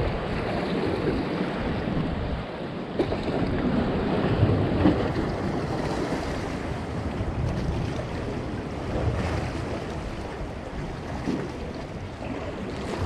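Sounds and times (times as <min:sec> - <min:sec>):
waves lapping against rocks: 0:00.0 - 0:13.0
wind buffeting the microphone: 0:00.0 - 0:13.0.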